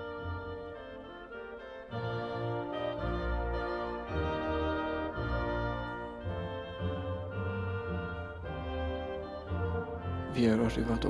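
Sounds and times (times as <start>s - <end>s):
film score of slow chords: 0.0s - 11.0s.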